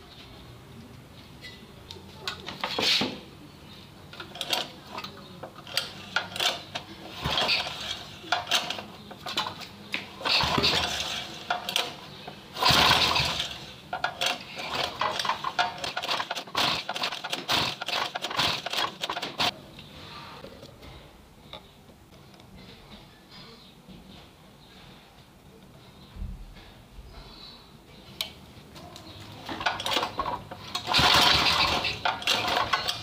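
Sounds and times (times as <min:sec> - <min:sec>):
metal tools clinking on engine: 0:29.5 - 0:33.0.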